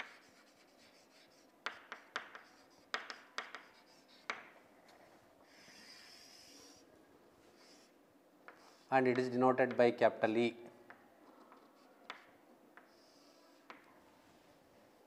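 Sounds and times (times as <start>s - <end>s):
chalk writing on a chalkboard: 0.0s - 4.6s, 5.4s - 9.3s, 11.4s - 13.9s.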